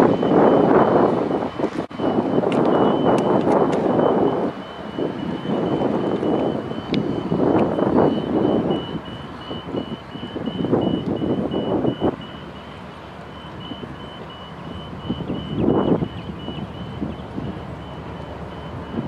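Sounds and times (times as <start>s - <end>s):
gusty rushing noise: 0.0s - 12.2s
electronic warning beeper: 0.0s - 19.0s.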